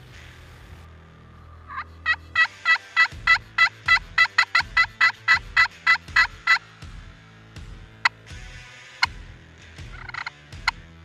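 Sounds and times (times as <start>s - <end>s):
turkey call hen yelps: 1.7s - 6.6s.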